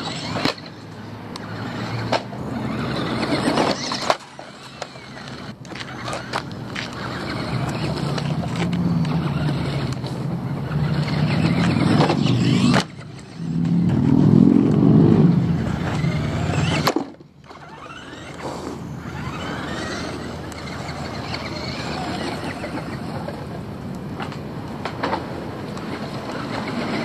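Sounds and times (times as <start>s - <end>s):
rc buggy motor whining: 0.0s - 27.0s
tyres on gravel: 0.0s - 27.0s.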